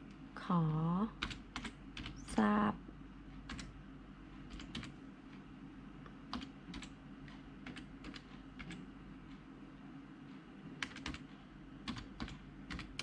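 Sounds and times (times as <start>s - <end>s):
typing on computer keyboard: 1.2s - 2.2s, 3.5s - 3.7s, 4.5s - 4.9s, 6.3s - 7.0s, 7.6s - 8.8s, 10.8s - 13.0s.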